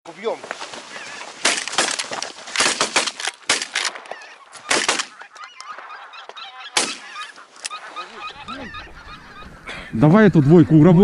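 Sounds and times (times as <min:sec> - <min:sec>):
geese honking: 0:00.8 - 0:01.6, 0:04.0 - 0:11.0.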